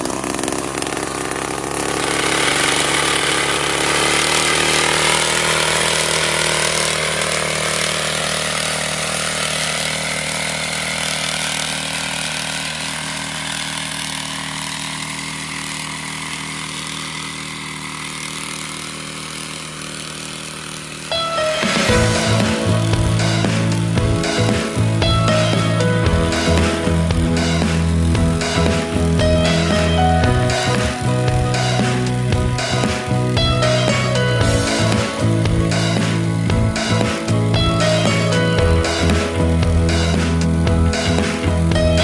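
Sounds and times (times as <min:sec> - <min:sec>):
small two-stroke engine running: 0:00.0 - 0:42.0.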